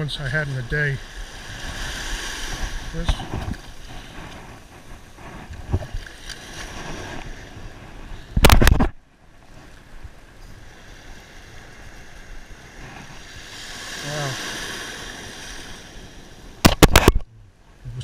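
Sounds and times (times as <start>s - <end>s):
surf washing over sand: 0.0s - 17.2s
wind on microphone: 1.0s - 10.2s.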